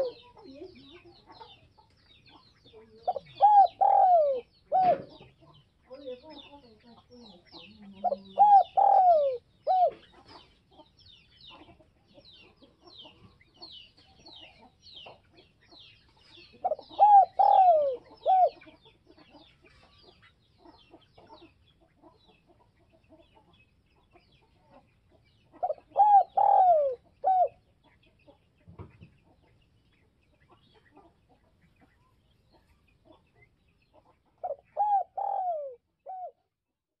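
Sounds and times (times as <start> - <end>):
dove cooing: 0.0 - 1.6, 2.8 - 6.6, 7.6 - 10.4, 16.5 - 18.8, 25.6 - 27.6, 34.4 - 36.4.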